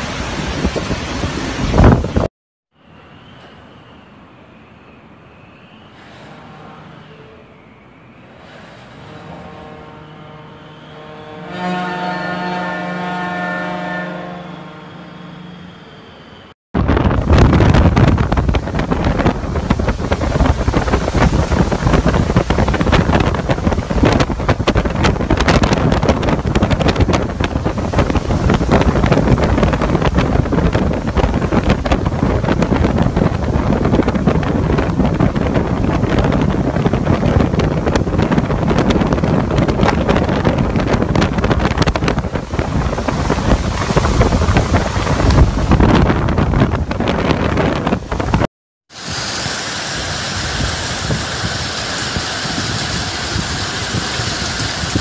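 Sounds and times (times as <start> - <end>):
hurricane wind and driving rain: 0.0 - 2.3, 16.8 - 55.0.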